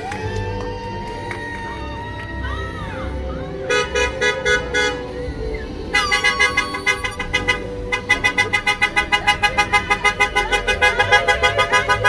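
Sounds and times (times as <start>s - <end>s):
car horns honking: 3.7s - 5.2s, 5.9s - 12.0s.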